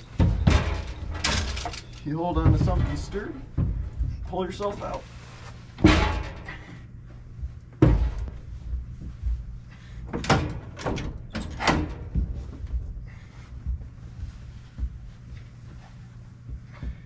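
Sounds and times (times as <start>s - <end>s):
heavy bangs with ringing: 5.8s - 6.7s.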